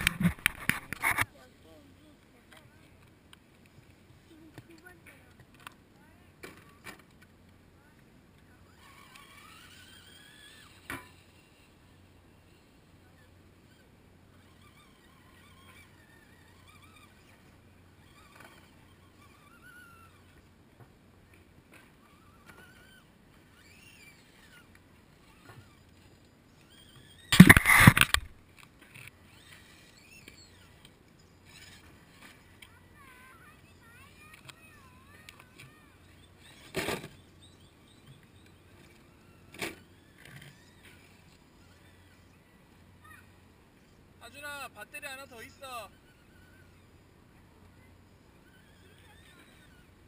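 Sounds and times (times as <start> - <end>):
camera scraping and rustling: 0.0 - 5.8, 8.7 - 20.5, 21.3 - 42.8
faint bird chirps: 29.2 - 50.0.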